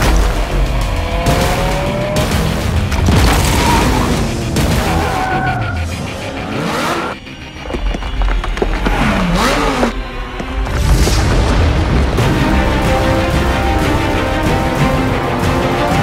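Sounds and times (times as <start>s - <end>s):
car engine revving: 0.0s - 7.5s, 8.5s - 16.0s
tyres skidding: 0.0s - 11.4s
music soundtrack: 0.0s - 16.0s
deep booms: 10.7s - 13.6s.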